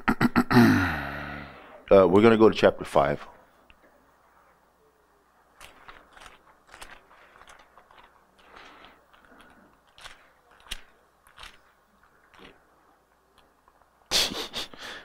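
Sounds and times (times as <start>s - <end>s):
book pages rustling: 5.5s - 14.0s.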